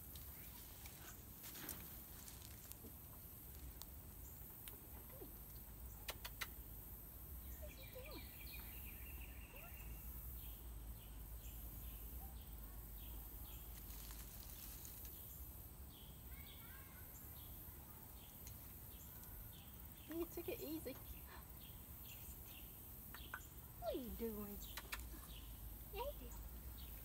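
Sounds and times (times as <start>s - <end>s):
small birds chirping: 0.0s - 27.0s
sharp clicks: 24.6s - 25.1s.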